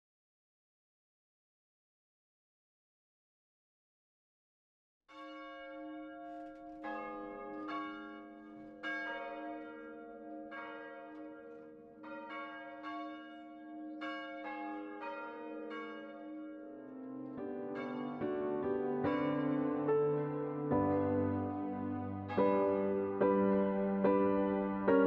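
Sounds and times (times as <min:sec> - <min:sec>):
church bells ringing: 0:05.1 - 0:25.0.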